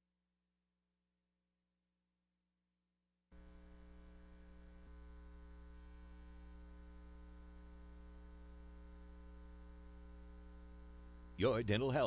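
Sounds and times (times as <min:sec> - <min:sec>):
electrical mains hum: 0:03.3 - 0:12.0.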